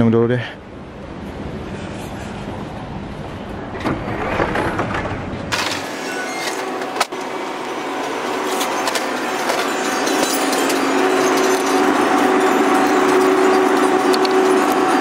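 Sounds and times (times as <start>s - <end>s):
store interior hiss and hum: 0.0s - 15.0s
drink cooler drone: 5.5s - 15.0s.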